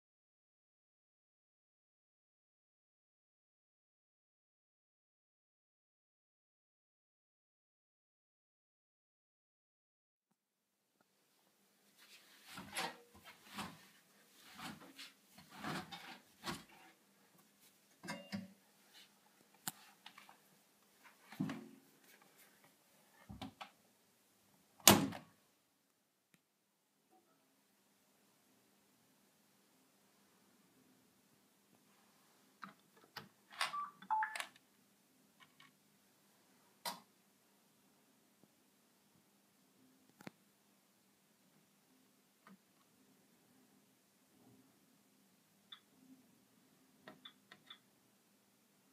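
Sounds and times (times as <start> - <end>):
short electronic beeps: 33.7 - 34.4.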